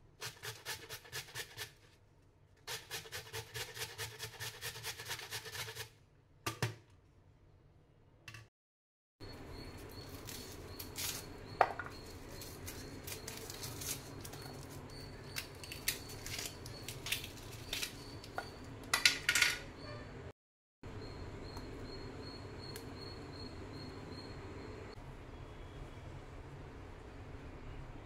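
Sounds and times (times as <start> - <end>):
onion skin crackling: 12.0 - 18.3.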